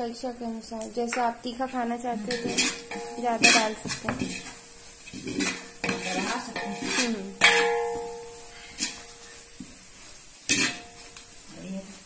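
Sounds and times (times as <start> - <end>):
ladle clanging on pot: 2.2 - 9.2, 10.5 - 11.0
ladle scraping metal pot: 2.2 - 9.7, 10.4 - 11.4.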